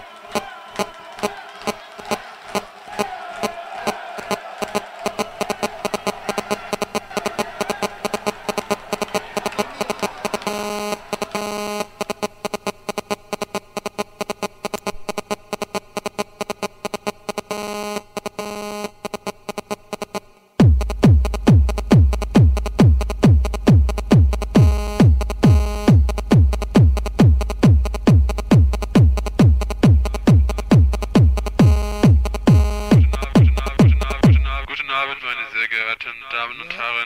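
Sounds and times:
electronic dance music: 0:00.0 - 0:35.6
heavy kick drum thuds: 0:20.6 - 0:34.5.

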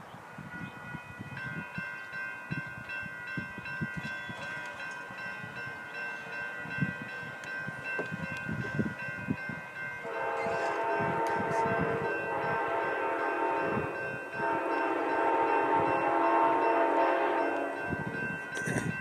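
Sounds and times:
crossing bell ringing: 0:00.0 - 0:19.0
train horn: 0:10.0 - 0:18.2.

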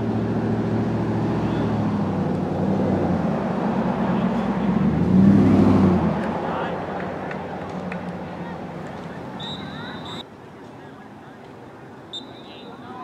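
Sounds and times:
engine drone: 0:00.0 - 0:10.2.

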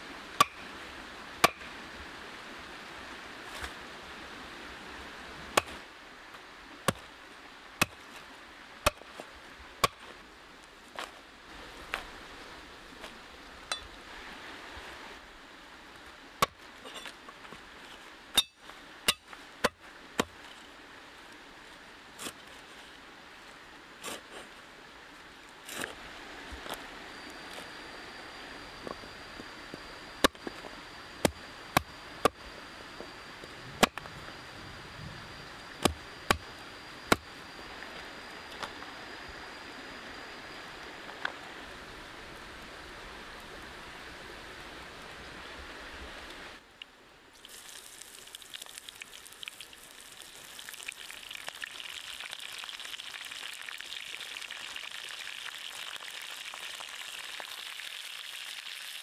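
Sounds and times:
steady hiss with high tone: 0:00.0 - 0:59.0
food sizzling in a pan: 0:47.4 - 0:59.0.

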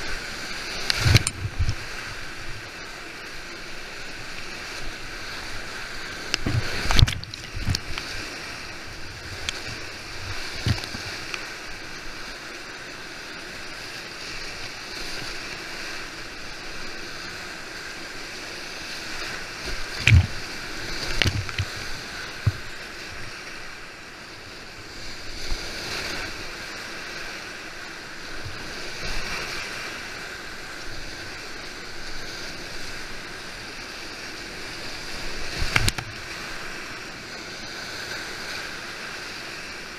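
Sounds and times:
kayak splashes and thumps: 0:00.0 - 0:02.8, 0:03.6 - 0:12.3, 0:18.6 - 0:23.7, 0:34.4 - 0:37.0
whitewater rapids rushing: 0:00.0 - 0:23.8.

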